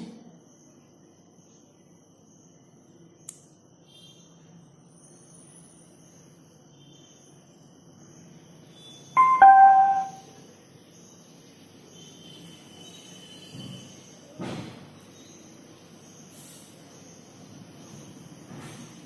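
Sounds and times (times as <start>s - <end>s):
two-tone electronic chime: 9.2s - 10.3s.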